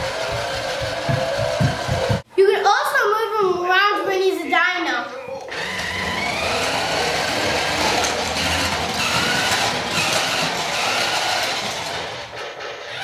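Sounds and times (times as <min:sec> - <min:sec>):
toy car motor whining: 0:00.0 - 0:02.2, 0:05.3 - 0:13.0.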